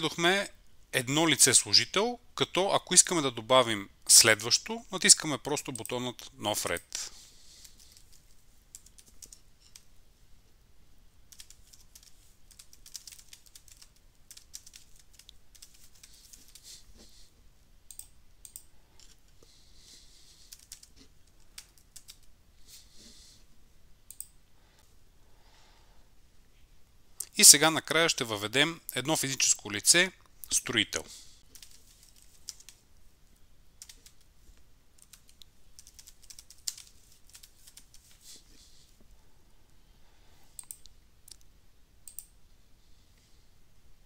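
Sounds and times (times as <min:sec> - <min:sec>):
keyboard typing: 0:07.6 - 0:09.9, 0:11.3 - 0:16.6, 0:20.5 - 0:22.3, 0:31.5 - 0:32.8, 0:33.8 - 0:34.3, 0:35.0 - 0:38.1
mouse clicks: 0:40.6 - 0:41.4, 0:42.0 - 0:42.3.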